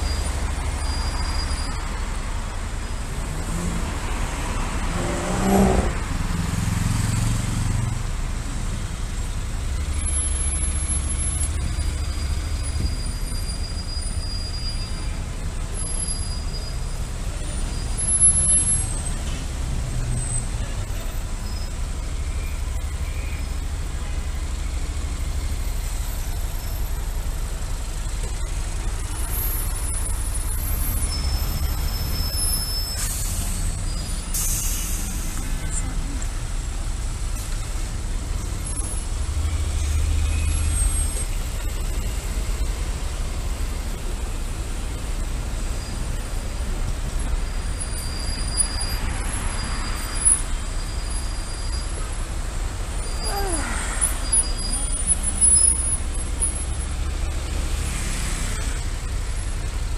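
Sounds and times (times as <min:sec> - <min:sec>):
road noise: 0:00.0 - 0:59.9
motorcycle engine rumble: 0:07.6 - 0:49.0.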